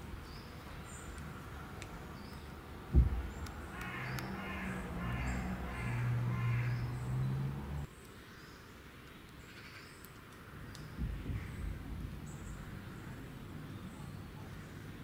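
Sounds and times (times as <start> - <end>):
thump: 2.9 - 3.3
harsh animal calls: 3.4 - 7.9.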